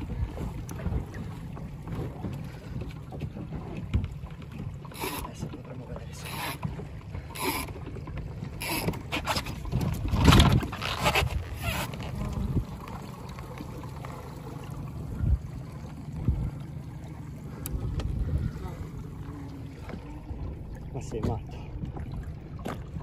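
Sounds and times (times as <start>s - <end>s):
wind rumbling on microphone: 8.6s - 13.0s, 14.8s - 23.0s.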